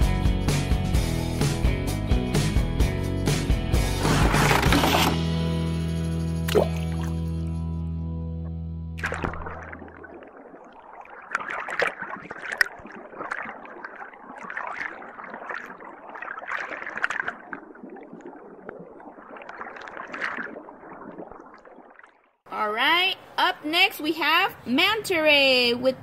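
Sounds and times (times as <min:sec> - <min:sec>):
water sloshing in a toy pool: 0:09.0 - 0:22.4.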